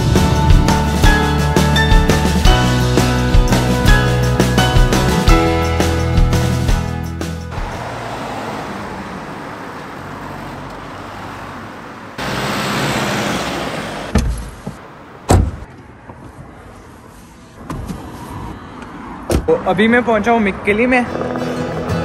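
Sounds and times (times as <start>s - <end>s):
street traffic noise: 0.0s - 22.0s
car passing: 7.2s - 22.0s
car door thumps: 14.1s - 15.7s, 19.3s - 19.5s.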